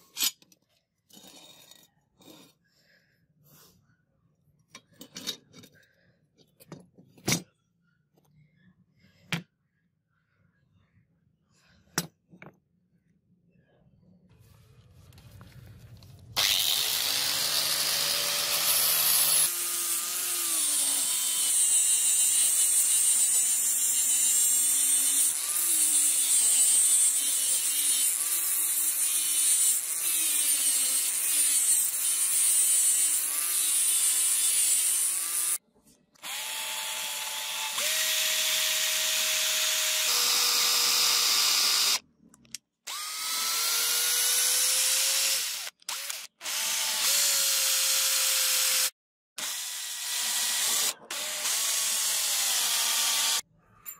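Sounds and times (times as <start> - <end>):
angle grinder grinding steel: 16.4 - 35.6
drill boring into wood: 16.4 - 35.6, 36.2 - 42.0, 42.9 - 53.4.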